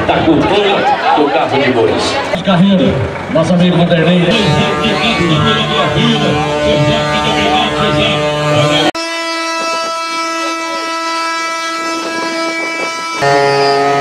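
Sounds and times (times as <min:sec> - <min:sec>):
wooden cart axle whining: 0:07.6 - 0:14.0.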